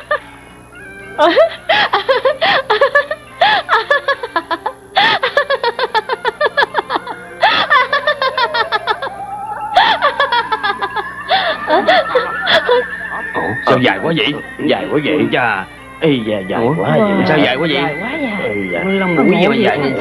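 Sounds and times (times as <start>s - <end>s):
low drone: 0.0s - 20.0s
comic film score: 1.0s - 20.0s
woman giggling: 1.2s - 13.2s
tone rising in pitch: 7.2s - 20.0s.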